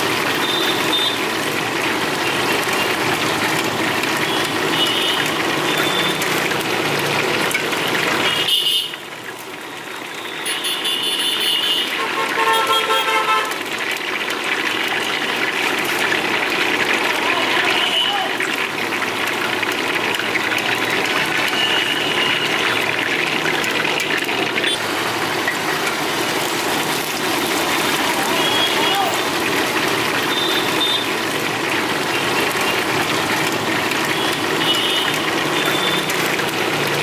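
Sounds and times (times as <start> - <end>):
chicken deep-frying in oil: 0.0 - 37.0
vehicle horns tooting: 0.3 - 1.2, 4.2 - 6.3, 7.9 - 9.1, 10.1 - 13.6, 17.4 - 18.4, 21.3 - 22.8, 28.2 - 29.3, 30.2 - 31.2, 34.0 - 36.3.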